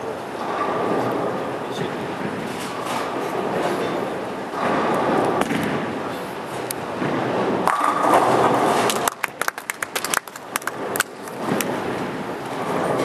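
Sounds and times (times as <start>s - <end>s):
bowling ball rolling: 0.0s - 13.0s
bowling pins clattering: 0.0s - 13.0s.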